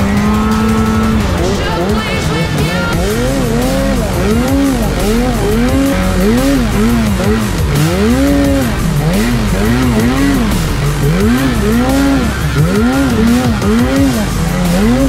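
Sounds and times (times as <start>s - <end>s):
snowmobile engine revving: 0.0s - 15.0s.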